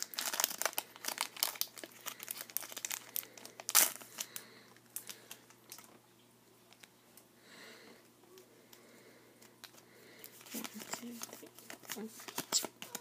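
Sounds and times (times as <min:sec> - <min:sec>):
wrapper crinkling: 0:00.0 - 0:06.0, 0:09.6 - 0:13.0.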